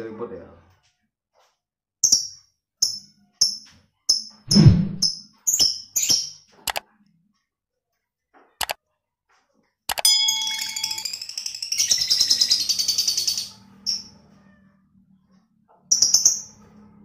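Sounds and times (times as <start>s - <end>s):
dull thump: 4.5s - 5.0s.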